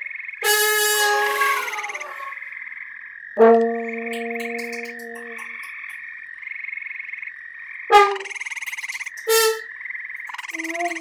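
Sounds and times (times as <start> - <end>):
tree frogs trilling: 0.0 - 11.0
sustained horn note: 0.5 - 2.4, 3.4 - 5.6, 7.9 - 8.3.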